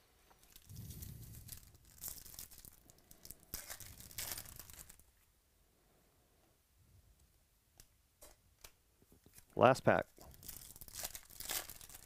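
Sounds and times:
foil wrapper tearing and crinkling: 0.4s - 5.0s, 10.2s - 12.0s.

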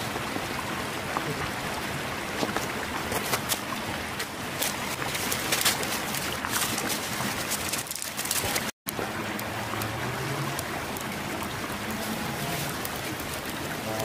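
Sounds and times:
river water flowing: 0.0s - 14.0s
faint crackles: 2.4s - 14.0s
sticks and dry leaves rustling: 2.4s - 14.0s.

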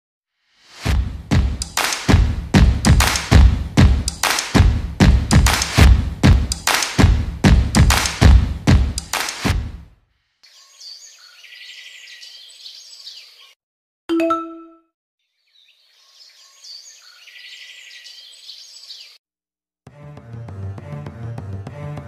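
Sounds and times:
birds chirping: 10.4s - 13.6s, 15.3s - 19.2s
bell-like ding: 14.1s - 14.8s.

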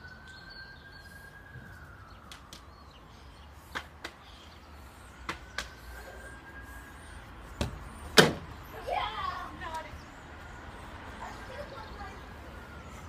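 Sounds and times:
distant siren: 0.0s - 13.0s.

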